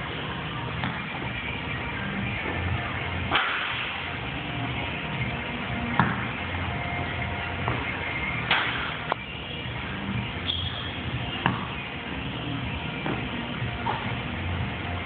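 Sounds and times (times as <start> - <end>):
background music: 0.0 - 15.0
basketball knocking against hoop: 6.0 - 6.2, 11.4 - 11.7.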